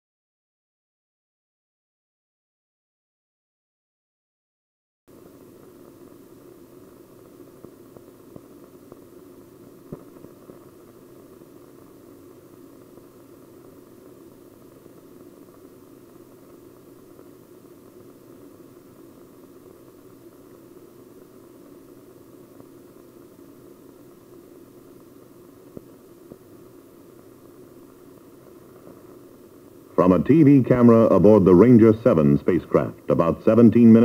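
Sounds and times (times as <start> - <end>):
film soundtrack hiss and hum: 5.1 - 34.0
faint clicks and pops: 7.1 - 29.8.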